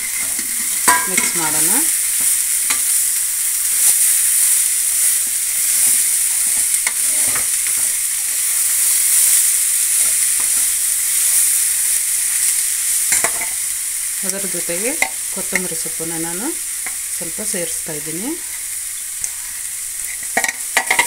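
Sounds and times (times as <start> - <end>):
steel ladle scraping pan: 0.0 - 1.7
beans sizzling in hot oil: 0.0 - 21.0.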